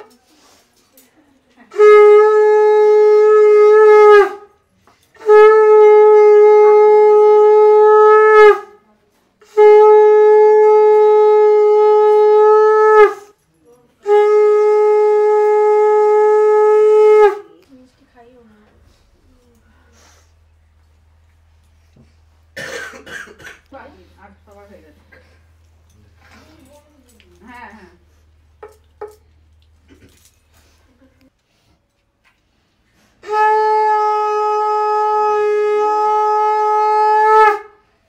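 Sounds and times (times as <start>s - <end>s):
conch shell blasts: 1.7s - 4.5s, 5.2s - 8.8s, 9.4s - 13.4s, 14.0s - 17.5s, 33.2s - 37.8s.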